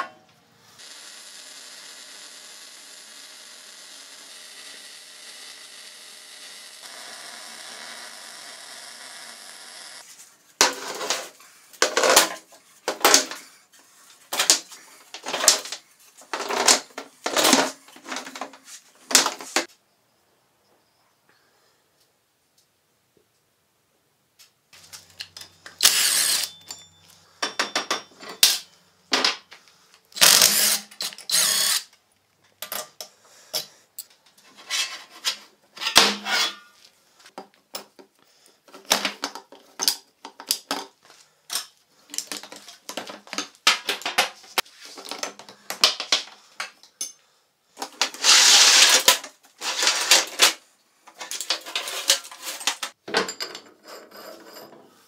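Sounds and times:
power tool bursts: 0:25.8 - 0:26.6, 0:30.2 - 0:31.9.

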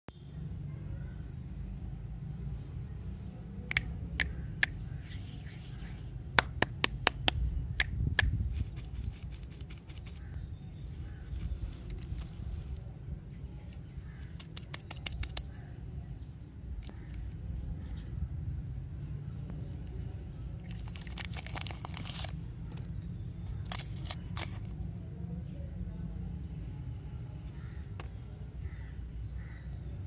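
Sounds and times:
clicks and taps of lollipop wrappers: 0:03.7 - 0:04.7, 0:06.4 - 0:10.3, 0:13.7 - 0:15.6, 0:20.6 - 0:24.8.

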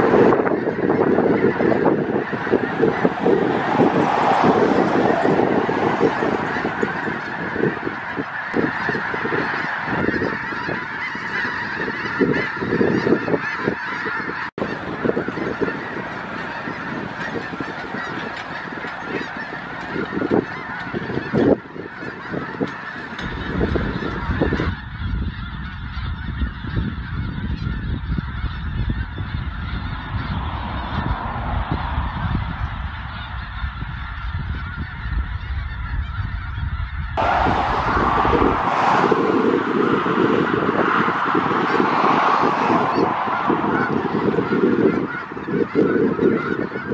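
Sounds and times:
flock of geese honking: 0:00.0 - 0:46.9
low rumble: 0:37.0 - 0:44.6.

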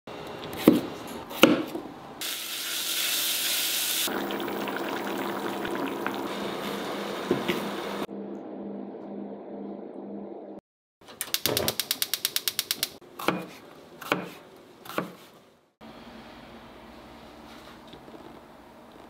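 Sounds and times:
frying sizzle: 0:02.2 - 0:08.0
stew simmering: 0:04.1 - 0:07.6.

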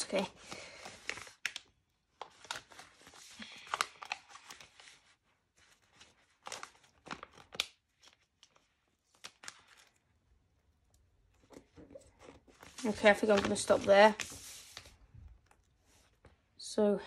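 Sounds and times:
sticker sheet crinkling: 0:12.5 - 0:16.1.

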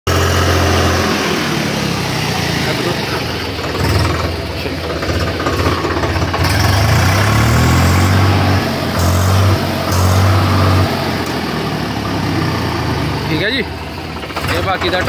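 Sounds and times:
tractor diesel engine running: 0:00.1 - 0:15.0.

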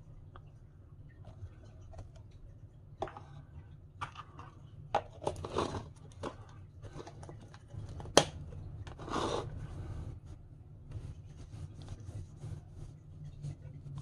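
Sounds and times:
wipe crinkly rustling: 0:05.5 - 0:14.0.

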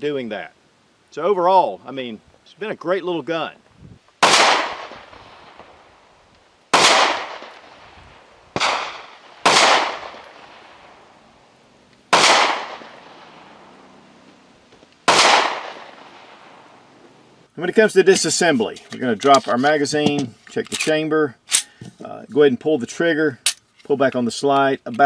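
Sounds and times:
pistol shots: 0:04.2 - 0:05.8, 0:06.7 - 0:07.8, 0:08.5 - 0:11.0, 0:12.1 - 0:13.5, 0:15.0 - 0:16.4.

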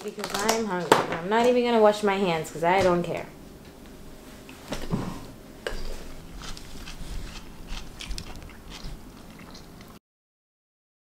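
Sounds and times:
eating crunches and clicks: 0:05.7 - 0:10.0.

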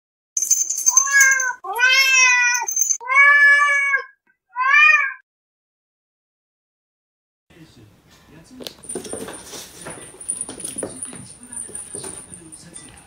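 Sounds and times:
cat meowing: 0:01.0 - 0:05.2.

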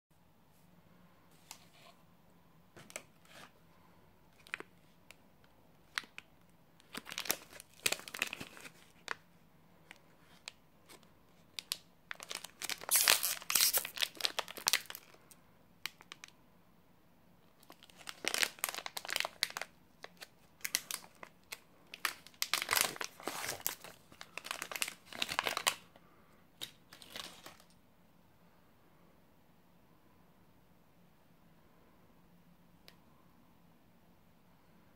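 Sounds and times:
plastic wrapper crinkling and tearing: 0:04.3 - 0:05.2, 0:05.8 - 0:09.2, 0:09.8 - 0:16.4, 0:17.6 - 0:25.9, 0:26.6 - 0:27.8.

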